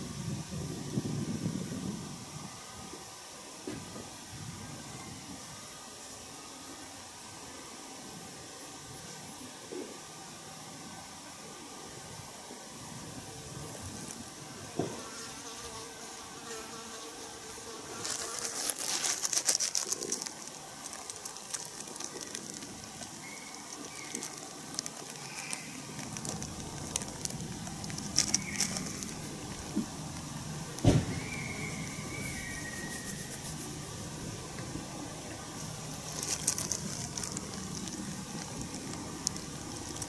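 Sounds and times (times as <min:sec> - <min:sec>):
insects buzzing: 0:00.0 - 0:40.0
thin drawn-out hum: 0:17.2 - 0:40.0
dense crackling and ticking: 0:17.9 - 0:40.0.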